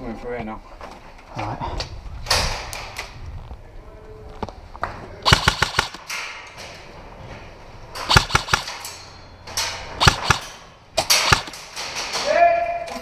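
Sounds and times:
airsoft guns firing bursts: 0:05.3 - 0:06.1, 0:08.1 - 0:08.9, 0:10.0 - 0:11.7.

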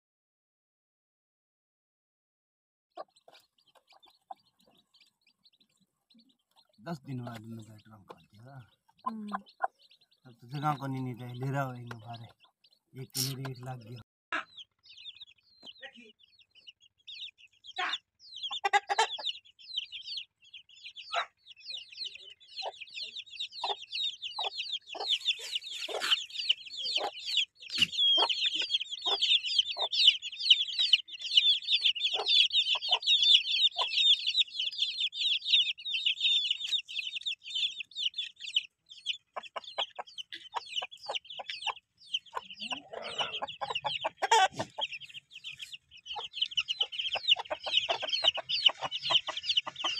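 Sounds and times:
chicks peeping: 0:02.9 - 0:49.9
low clucking: 0:39.3 - 0:45.2, 0:46.0 - 0:49.9.

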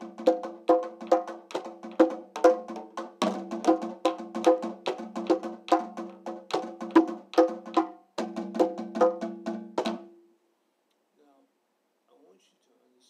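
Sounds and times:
hand drum struck with stick: 0:00.0 - 0:10.2.

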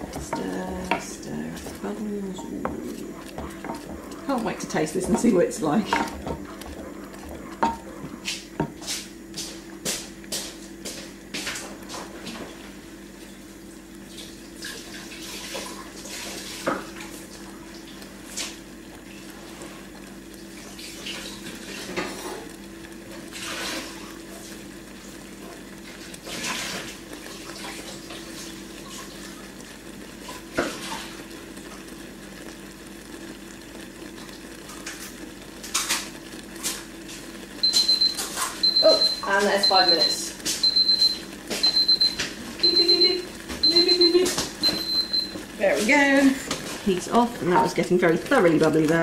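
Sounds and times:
steady low hum: 0:00.0 - 0:12.9
sauce bubbling in a pot: 0:00.0 - 0:49.0.

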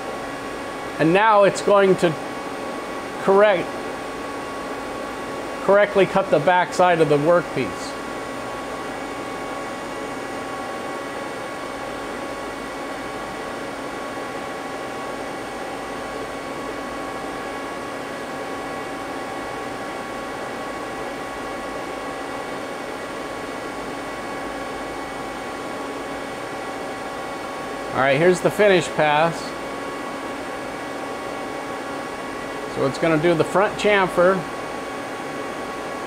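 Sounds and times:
lathe idling whir and hum: 0:00.0 - 0:36.0
steady machine tones: 0:20.3 - 0:36.0.

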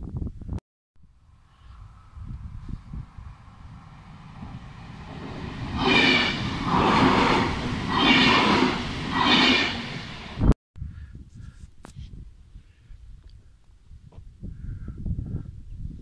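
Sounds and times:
electric train passing on rails: 0:01.2 - 0:10.6.

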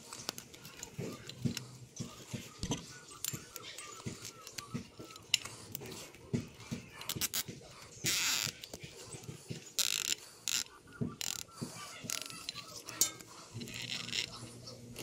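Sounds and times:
zip tie ratcheting: 0:09.8 - 0:11.4.

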